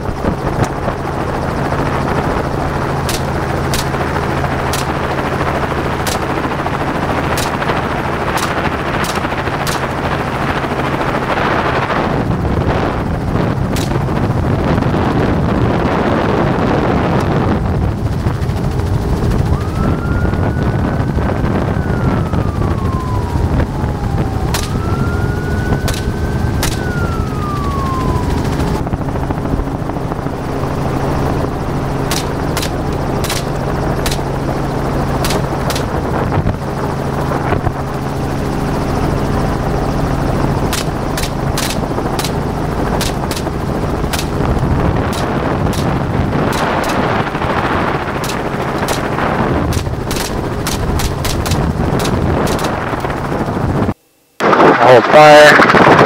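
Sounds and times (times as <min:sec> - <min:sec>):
helicopter rotor and engine drone: 0:00.0 - 0:56.0
rising and falling siren-like tones: 0:00.0 - 0:56.0
sharp clicks: 0:03.0 - 0:04.0, 0:04.7 - 0:05.0, 0:06.0 - 0:06.4, 0:07.3 - 0:07.7, 0:08.4 - 0:09.9, 0:13.7 - 0:14.2, 0:24.5 - 0:25.0, 0:25.8 - 0:26.9, 0:32.1 - 0:34.3, 0:35.2 - 0:36.0, 0:40.7 - 0:42.4, 0:43.0 - 0:43.5, 0:44.1 - 0:47.3, 0:48.2 - 0:52.8.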